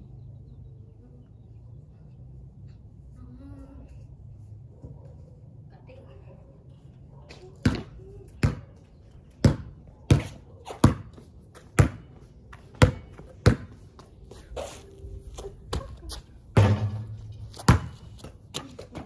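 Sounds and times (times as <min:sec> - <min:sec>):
basketball bouncing on pavement: 0:07.3 - 0:14.3, 0:15.4 - 0:19.0
loud impact with low hum: 0:16.6 - 0:17.9.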